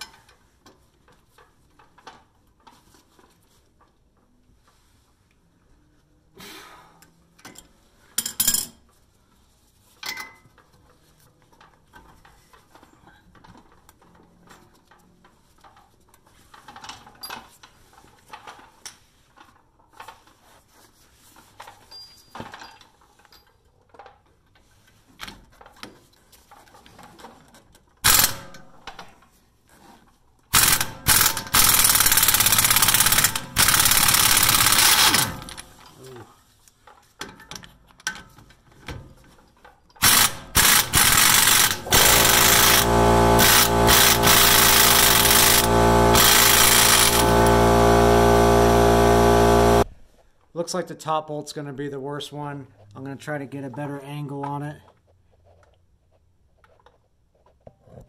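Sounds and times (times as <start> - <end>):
impact wrench hammering: 28.1 - 28.7, 30.6 - 35.7, 40.0 - 49.8
ratchet and hand tools clanking: 30.6 - 36.0, 40.0 - 47.6.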